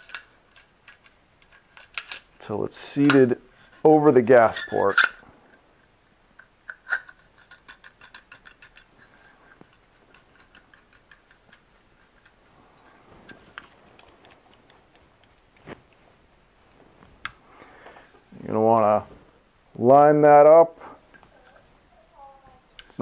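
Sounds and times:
rapid even metallic ticks: 7.1s - 12.6s.

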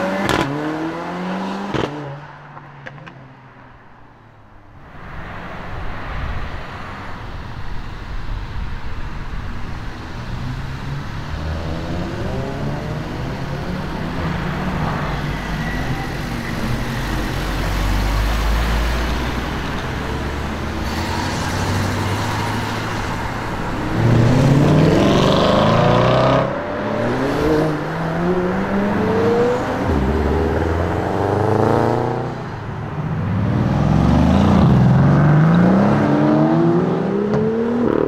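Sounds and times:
car engines accelerating past: 10.3s - 38.0s.

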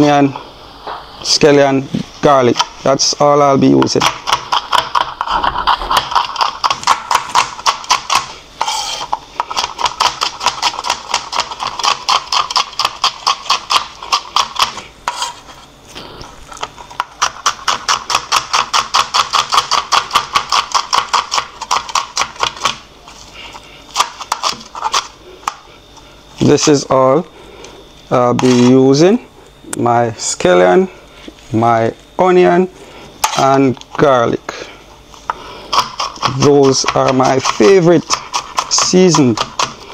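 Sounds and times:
knife chopping on cutting board: 3.8s - 15.3s, 35.7s - 39.8s.

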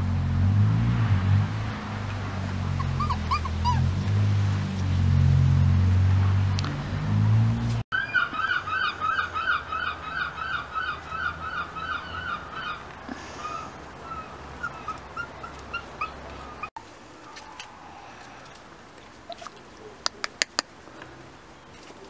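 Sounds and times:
puppy yapping: 2.7s - 4.0s, 13.4s - 16.7s.

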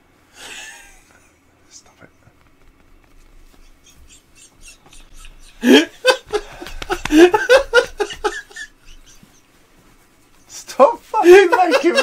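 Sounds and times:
men laughing heartily: 0.4s - 1.4s, 3.3s - 9.6s, 11.2s - 12.0s.

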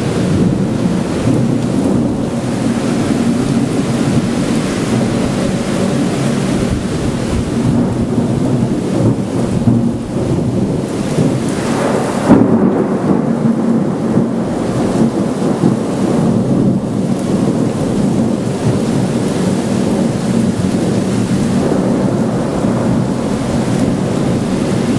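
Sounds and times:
loud thunderclap: 0.0s - 24.9s
rain pouring: 0.0s - 24.9s
thunder rumbling: 0.0s - 24.9s.

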